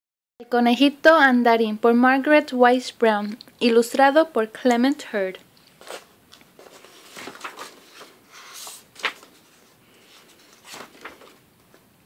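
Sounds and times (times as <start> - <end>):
book pages turning: 5.7 - 11.9.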